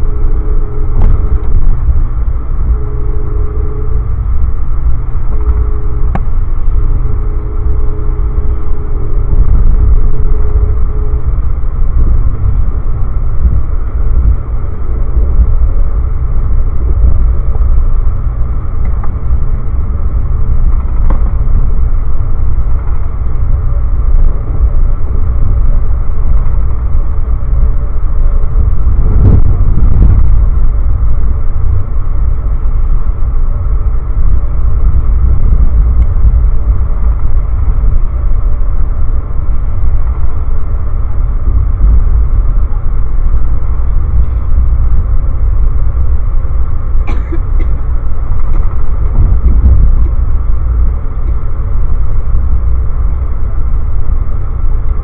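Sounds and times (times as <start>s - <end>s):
faint hum: 0.0s - 55.0s
train rumbling on rails: 0.0s - 55.0s.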